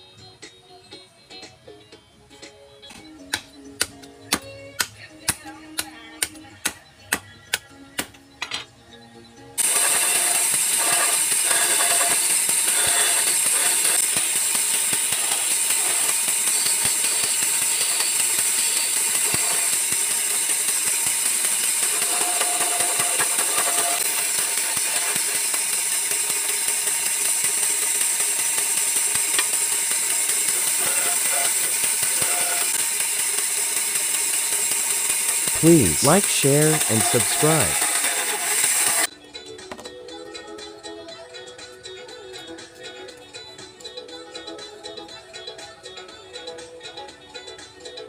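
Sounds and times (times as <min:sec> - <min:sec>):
band saw cutting: 0:09.6 - 0:39.1.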